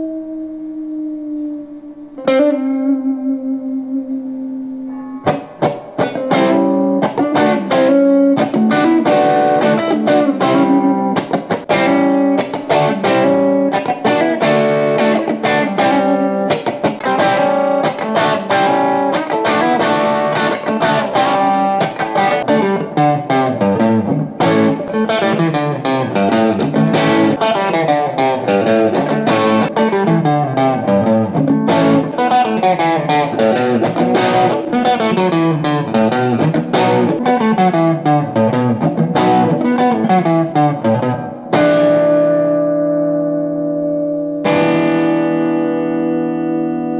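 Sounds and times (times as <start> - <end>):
overdriven electric guitar notes: 0.0 - 46.9.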